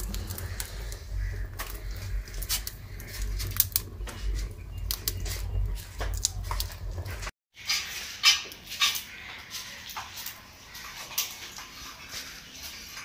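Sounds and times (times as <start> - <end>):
fire crackling and snapping: 0.0 - 7.3
low fire rumble: 0.0 - 7.3.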